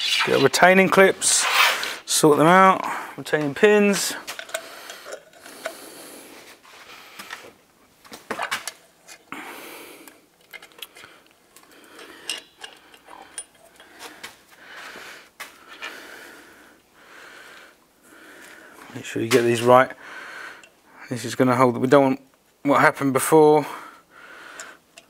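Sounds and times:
metal clinks of brake parts: 11.9 - 14.1.

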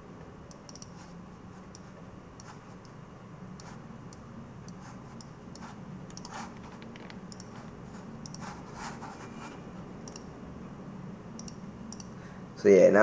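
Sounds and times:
low steady hum: 0.0 - 13.0
mouse clicking: 0.5 - 1.0, 3.6 - 8.6, 10.0 - 10.3, 11.4 - 12.2.

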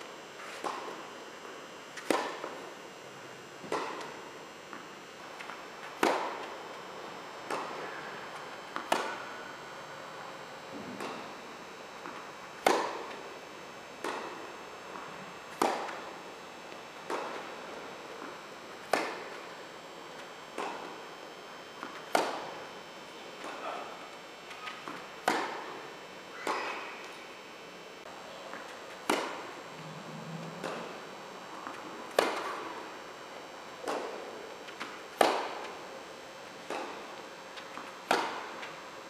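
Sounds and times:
tennis balls struck by rackets: 0.4 - 1.1, 1.9 - 2.8, 3.6 - 6.8, 7.4 - 9.6, 10.7 - 13.4, 14.0 - 16.3, 17.0 - 19.5, 20.1 - 21.0, 21.8 - 22.7, 24.5 - 27.2, 28.4 - 29.6, 30.5 - 32.9, 33.8 - 35.8, 36.6 - 38.8
tennis balls bouncing on court: 2.0 - 2.7, 3.6 - 6.7, 7.4 - 9.5, 10.7 - 11.4, 12.0 - 13.3, 14.0 - 16.2, 17.0 - 19.4, 20.2 - 21.0, 21.8 - 22.6, 24.5 - 25.8, 26.4 - 26.9, 28.5 - 29.5, 30.6 - 32.9, 33.8 - 35.8, 36.6 - 38.8.

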